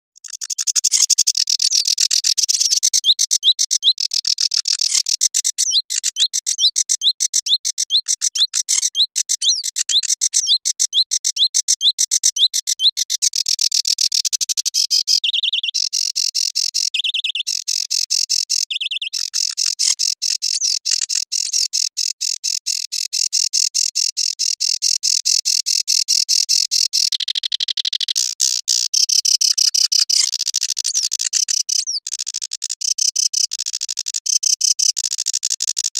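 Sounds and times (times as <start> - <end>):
warbler singing scratchy chatter: 0.2 - 35.9
buzzy bird trills: 14.8 - 21.8.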